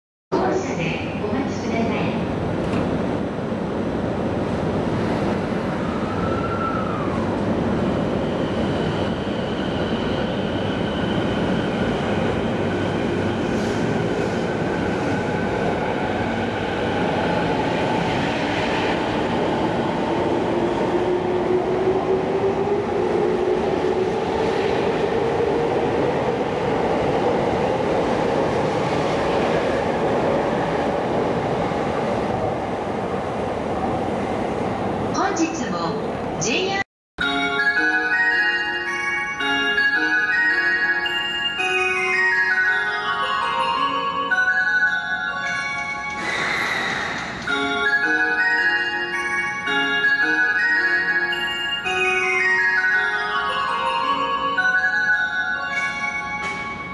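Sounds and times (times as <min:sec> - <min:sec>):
train wheels rumbling on rails: 0:45.6 - 0:47.6.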